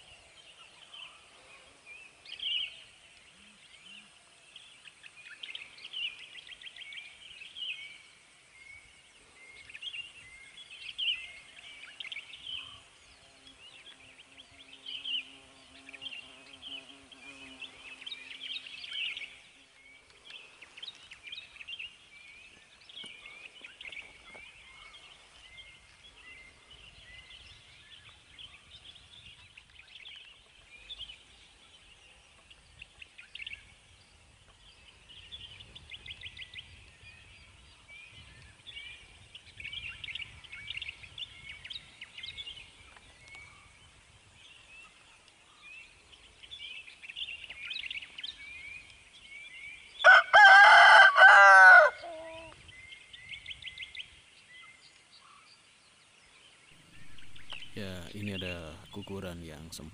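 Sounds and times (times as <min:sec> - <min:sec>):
small birds chirping: 0:00.0 - 0:50.2, 0:52.0 - 0:59.9
rooster crowing: 0:50.0 - 0:52.5.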